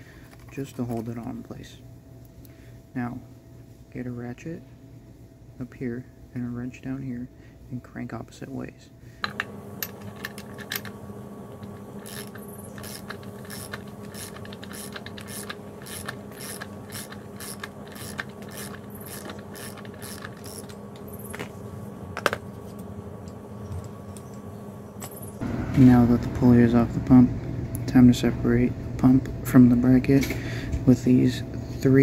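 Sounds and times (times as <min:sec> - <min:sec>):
steady hum: 0:00.0 - 0:32.0
ratchet wrench clicking: 0:12.0 - 0:20.8.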